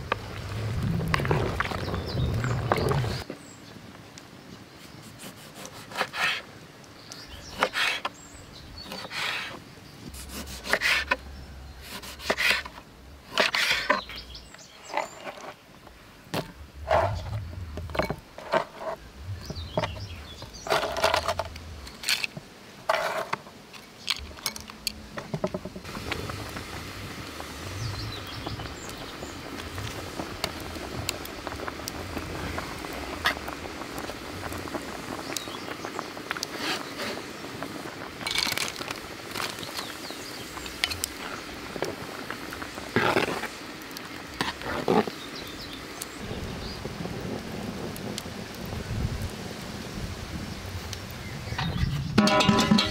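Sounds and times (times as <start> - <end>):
syrup bubbling in pan: 25.8 - 45.8
items dropped into glass bowl: 52.2 - 52.9.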